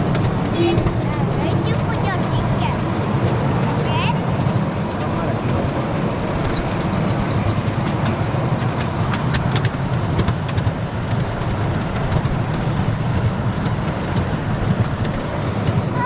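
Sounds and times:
miniature train wheels rumbling on rail: 0.0 - 16.0
sharp clicks: 6.4 - 12.6.

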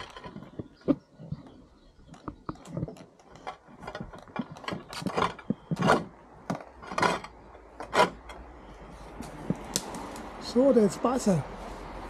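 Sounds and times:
short scraping rasps: 2.2 - 8.4.

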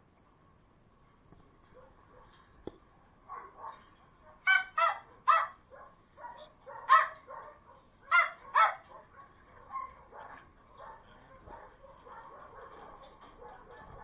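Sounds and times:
dog barking: 3.3 - 14.0.

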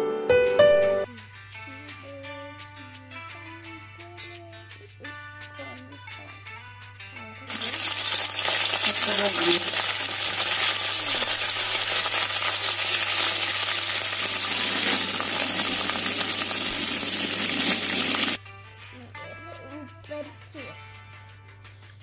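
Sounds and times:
leaves sizzling in hot oil: 7.5 - 18.4.

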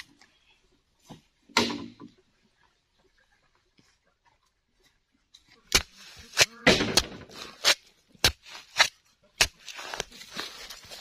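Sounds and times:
soil scraping and crumbling: 5.4 - 11.0
digging tool striking stony soil: 5.7 - 11.0.

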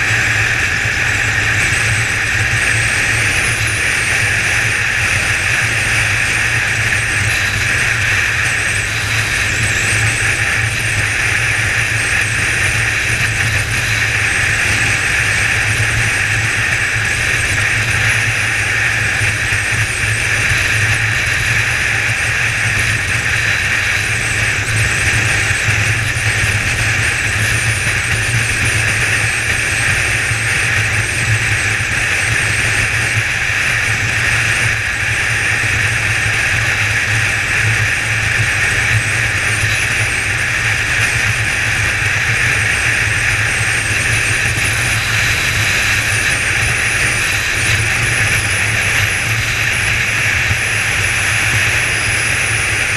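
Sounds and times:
motorcycle engine cruising: 0.0 - 52.9
wind and road rush: 0.0 - 52.9.

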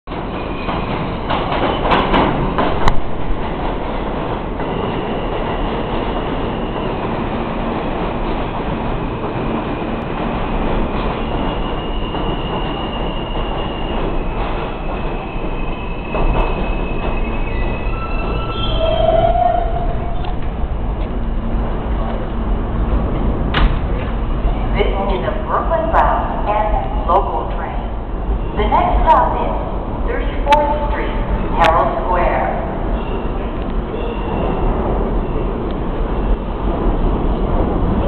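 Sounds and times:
train wheels rumbling on rails: 0.1 - 38.0
wheels squealing: 11.1 - 20.5.

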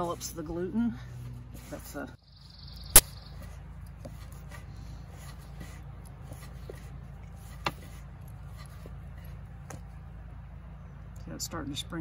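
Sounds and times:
hands kneading dough: 3.3 - 10.1.

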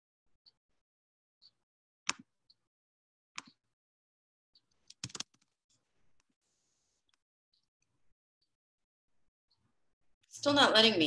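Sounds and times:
computer clicks and taps: 1.4 - 2.6, 3.4 - 3.6, 4.6 - 5.5.

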